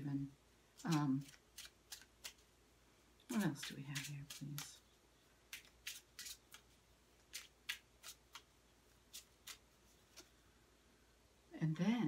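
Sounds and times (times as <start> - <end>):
cards being shuffled: 0.8 - 2.5, 3.3 - 4.8, 5.5 - 10.4.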